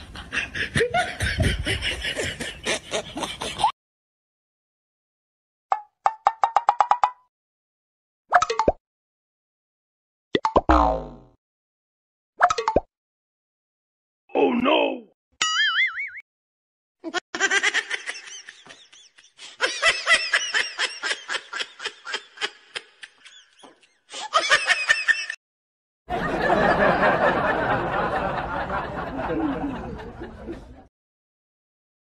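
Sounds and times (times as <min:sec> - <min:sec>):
dubbed laughter: 0:00.0 - 0:03.7, 0:17.1 - 0:25.4, 0:26.1 - 0:30.9.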